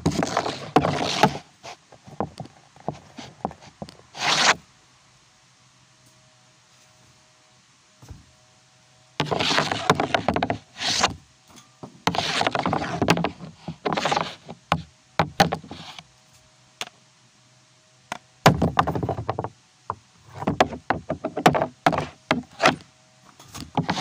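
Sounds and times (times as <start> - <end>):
hockey stick scraping puck: 0.0 - 4.6, 9.2 - 11.2, 11.8 - 16.0, 20.3 - 24.0.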